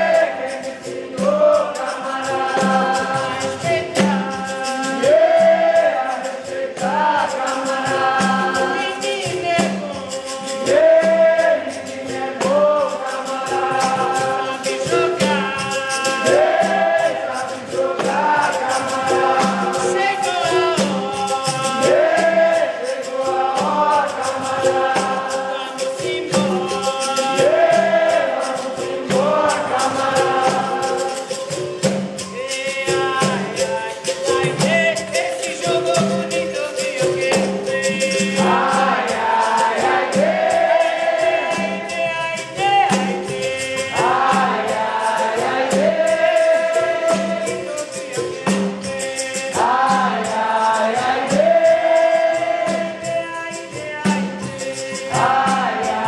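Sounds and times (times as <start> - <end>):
group singing: 0.0 - 56.0
shaker rattles: 0.0 - 56.0
tambourine jingles: 0.0 - 56.0.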